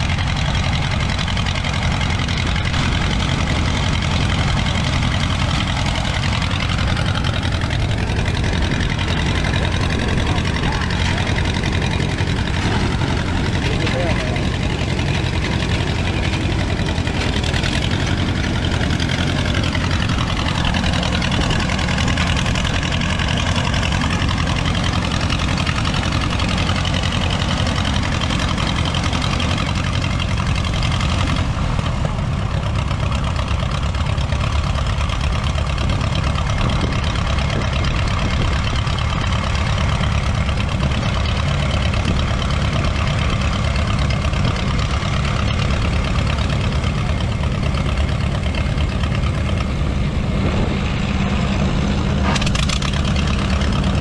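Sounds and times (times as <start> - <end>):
combine machinery running: 0.0 - 54.0
tractor engine running under load: 0.0 - 54.0.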